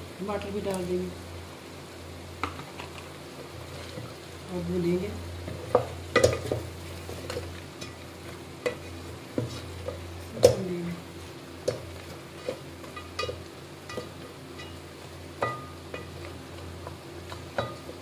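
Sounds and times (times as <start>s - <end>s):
low steady hum: 0.0s - 18.0s
meat and tomatoes sizzling in pot: 0.0s - 18.0s
spoon knocking against pot: 15.4s - 16.1s.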